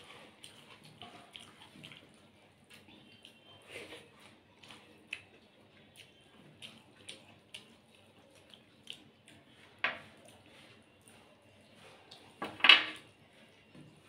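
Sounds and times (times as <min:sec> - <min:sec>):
chewing: 0:00.0 - 0:12.4.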